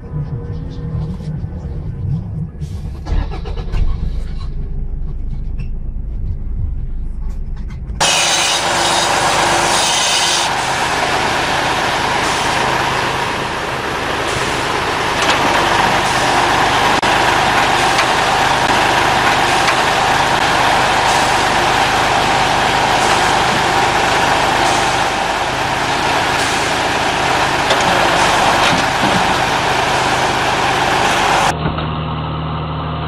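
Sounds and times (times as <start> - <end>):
truck engine running: 0.0 - 33.0
vehicle rumble inside cab: 0.0 - 33.0.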